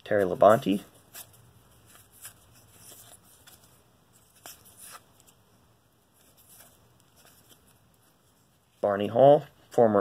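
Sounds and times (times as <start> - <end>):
cards sliding: 0.2 - 5.4, 6.2 - 8.4.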